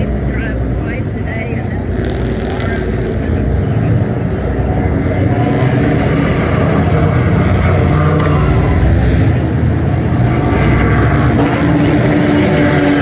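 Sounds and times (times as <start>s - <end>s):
car engines droning: 0.0s - 13.0s.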